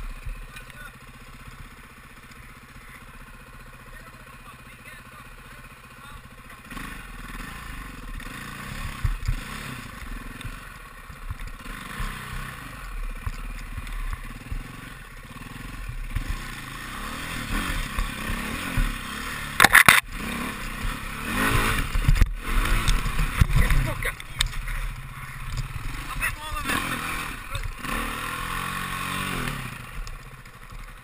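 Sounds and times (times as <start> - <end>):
dirt bike engine revving: 0.0 - 31.0
bike clattering over rough ground: 17.6 - 28.4.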